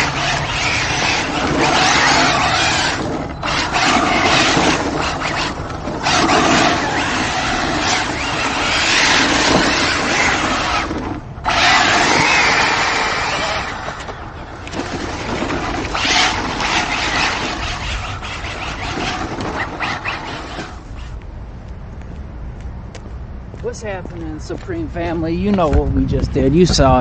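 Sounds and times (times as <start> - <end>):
rc truck motor running: 0.0 - 21.0
tires skidding on asphalt: 0.0 - 21.2.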